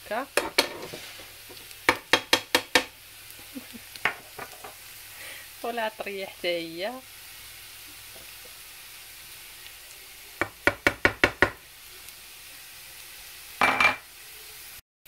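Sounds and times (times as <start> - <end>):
vegetables sizzling in a frying pan: 0.0 - 14.8
dish knocking against pan: 0.4 - 0.9, 1.9 - 2.9, 4.0 - 4.8, 10.4 - 11.6, 13.6 - 14.0.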